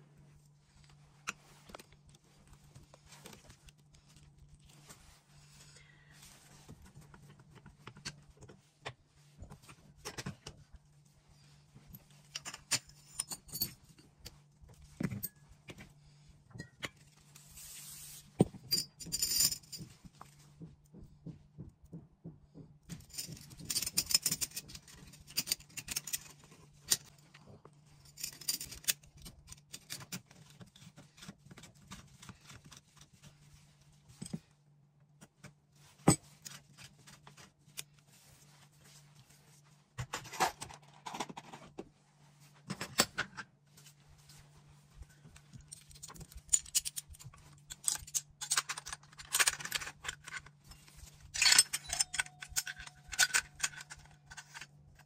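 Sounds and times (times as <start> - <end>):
metal gun parts clicking: 45.7 - 50.6, 51.4 - 55.0.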